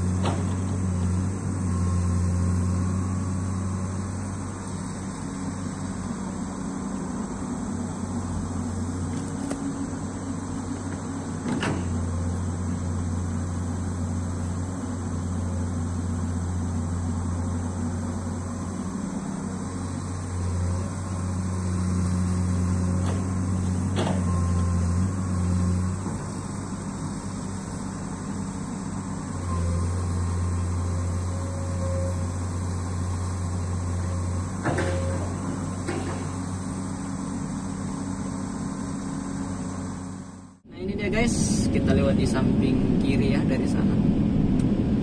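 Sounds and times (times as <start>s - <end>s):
excavator diesel engine droning: 0.0s - 45.0s.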